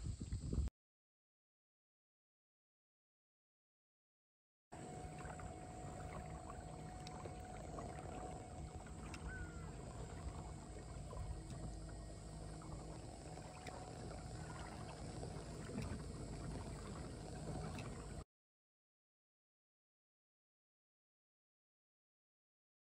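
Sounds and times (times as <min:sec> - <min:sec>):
water rumble from kayak: 0:00.0 - 0:00.7, 0:04.8 - 0:18.2
faint high chirps: 0:08.8 - 0:10.5.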